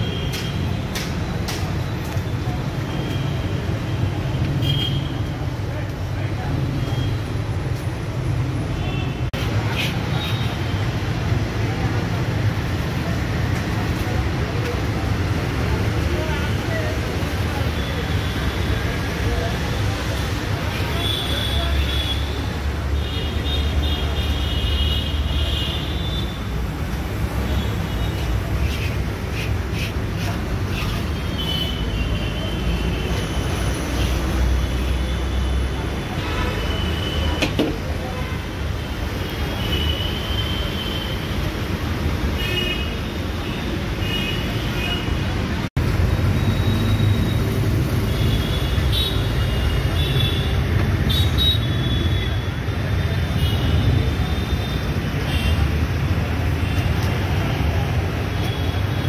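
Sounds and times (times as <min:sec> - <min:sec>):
road traffic rumble: 0:00.0 - 0:59.0.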